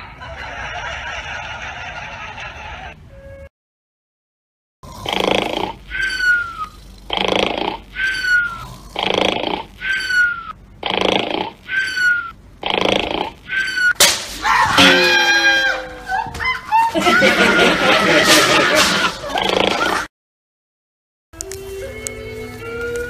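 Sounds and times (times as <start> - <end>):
cartoon snoring with whistle: 4.8 - 14.0.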